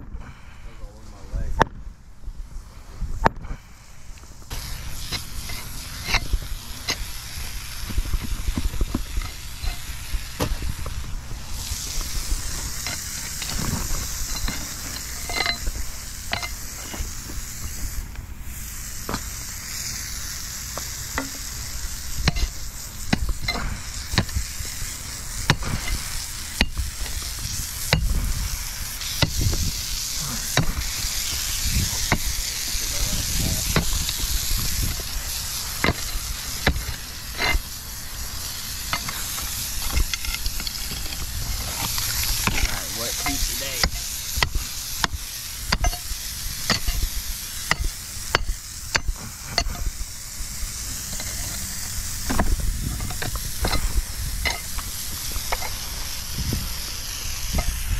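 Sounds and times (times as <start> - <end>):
gravel crunching and scraping: 0.0 - 57.9
steady high hiss: 0.0 - 57.9
pick mattock striking concrete: 35.8 - 37.6, 42.4 - 46.0, 46.6 - 49.9.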